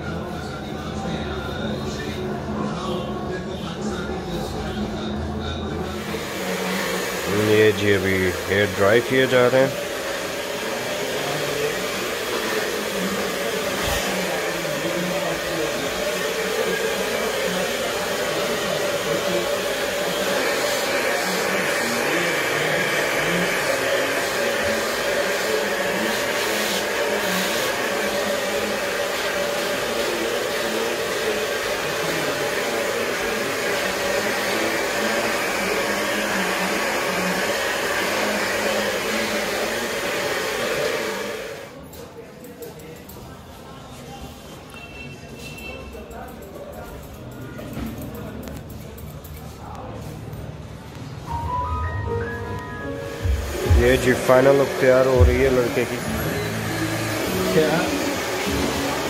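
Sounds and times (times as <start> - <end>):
hair dryer running: 5.9 - 41.8, 53.1 - 59.0.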